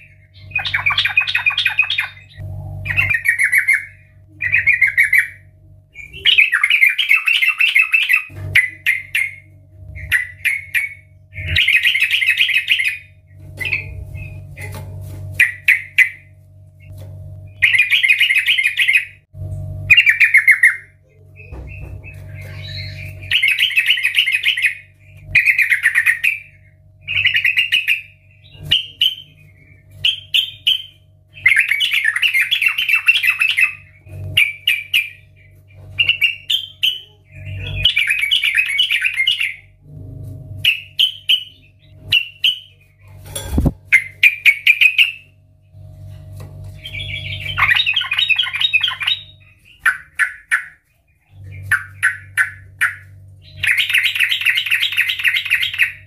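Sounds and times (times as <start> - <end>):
bird singing bubbly chattering phrases: 0.0 - 14.5, 19.9 - 39.7, 46.8 - 56.0.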